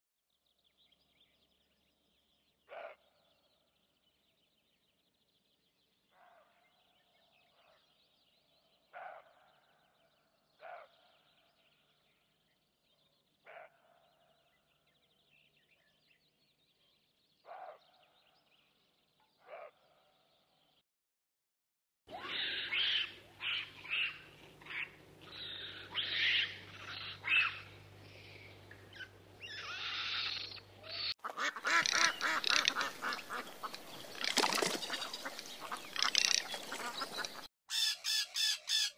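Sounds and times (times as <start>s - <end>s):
bird calling: 22.1s - 38.9s.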